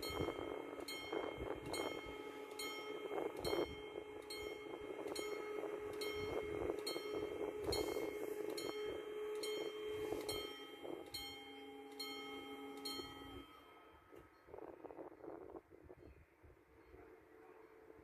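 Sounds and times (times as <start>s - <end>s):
level crossing bell ringing: 0.0s - 14.0s.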